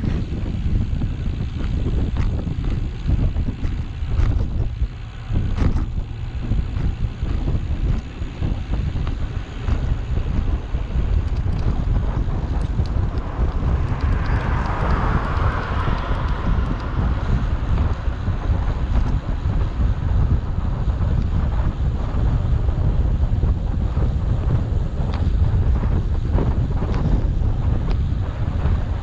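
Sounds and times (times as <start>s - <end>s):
wind buffeting microphone: 0.0s - 29.0s
small clicks and knocks: 11.2s - 16.9s.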